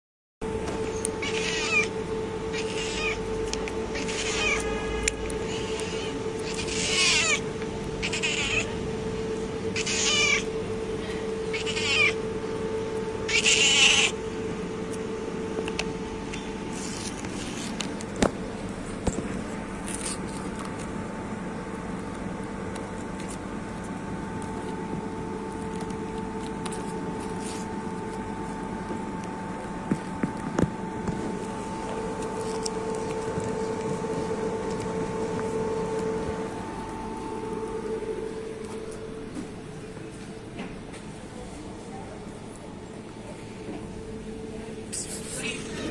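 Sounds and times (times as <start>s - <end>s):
steady low hum: 0.4s - 45.9s
cat meowing: 1.2s - 3.3s, 3.9s - 7.4s, 8.0s - 8.8s, 9.8s - 10.5s, 11.5s - 12.2s, 13.3s - 14.2s.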